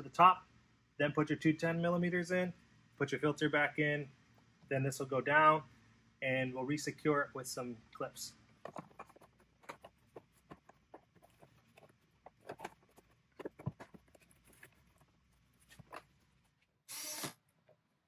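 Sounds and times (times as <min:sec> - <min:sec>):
plastic parts clicking and tapping: 0:08.6 - 0:15.0
cordless drill-driver running: 0:16.9 - 0:17.4.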